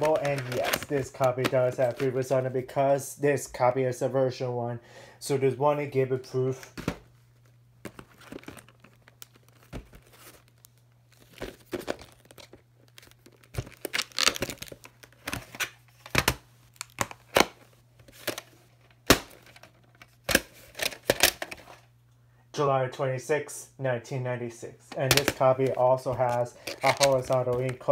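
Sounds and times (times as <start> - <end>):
plastic cases clicking and snapping: 0.0 - 2.1, 11.2 - 21.8, 24.9 - 27.9
crinkly rustling: 0.0 - 2.3, 7.3 - 16.1, 25.4 - 27.9
faint steady hum: 0.0 - 27.9.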